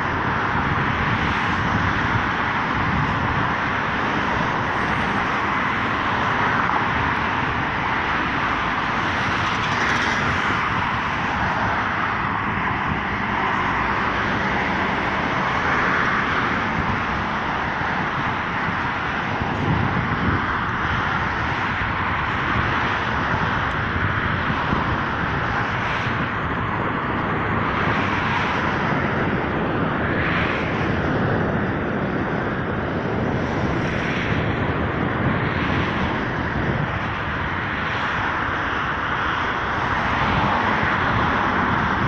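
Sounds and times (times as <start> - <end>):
road traffic passing: 0.0 - 42.0.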